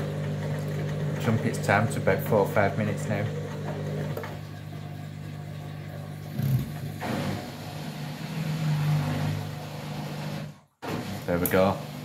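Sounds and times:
washing machine motor humming: 0.0s - 12.0s.

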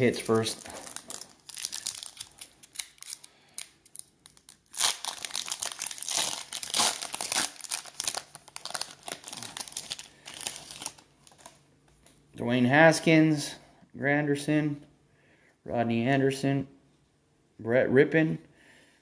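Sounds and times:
plastic wrapper crinkling and tearing: 0.0s - 11.6s.

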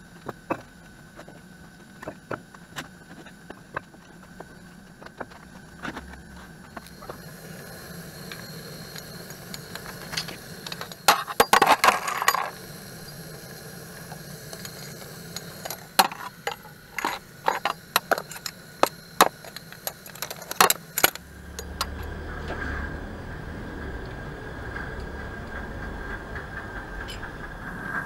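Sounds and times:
faint steady hum: 0.0s - 28.0s
low rumble: 5.6s - 7.8s, 21.2s - 28.0s.

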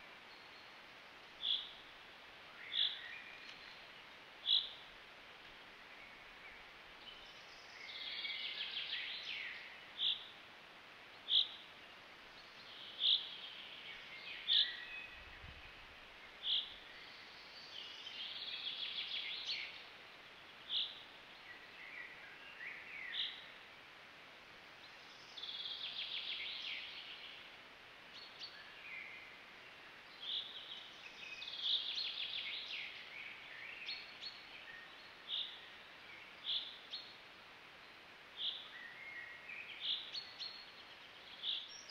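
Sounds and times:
songbirds singing trilled phrases: 2.6s - 4.8s, 12.4s - 23.5s, 28.2s - 37.2s, 37.8s - 41.9s.

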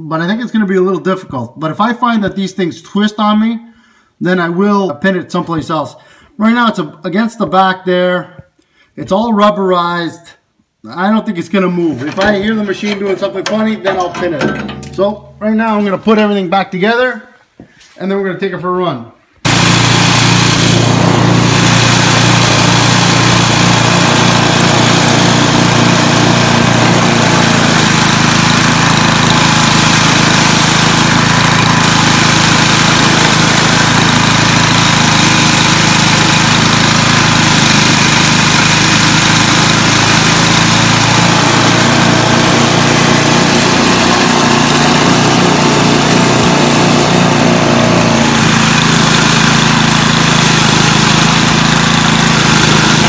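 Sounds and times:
snowblower engine running: 12.2s - 15.5s, 19.4s - 53.0s.

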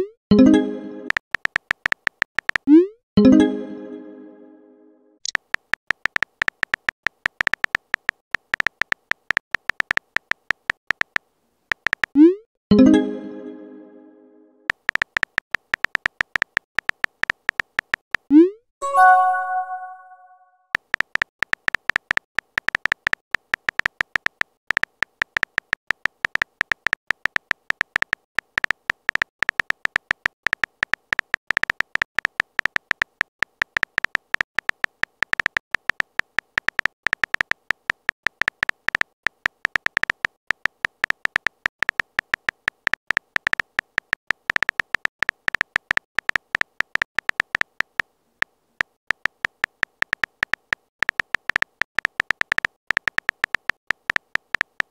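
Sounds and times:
phone keyboard key clicks: 1.1s - 2.7s, 5.2s - 12.2s, 14.7s - 18.3s, 20.8s - 48.1s, 48.8s - 54.9s.

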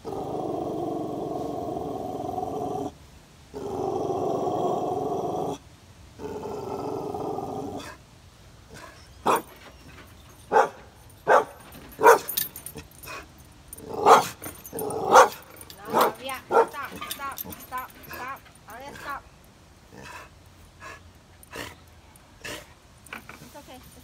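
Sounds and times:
dog growling: 0.0s - 2.9s, 3.5s - 5.6s, 6.2s - 8.0s, 13.0s - 19.2s, 19.9s - 21.8s
dog barking: 10.5s - 12.4s, 14.0s - 14.4s, 15.1s - 17.0s.

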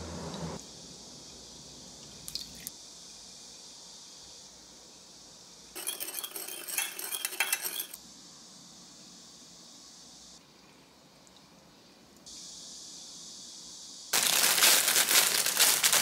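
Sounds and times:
metal spoon clinking against glass: 5.8s - 8.0s.

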